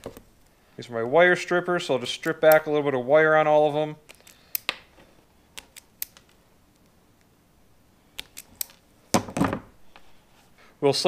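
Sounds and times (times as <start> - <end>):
wire strippers clicking: 2.3 - 2.7.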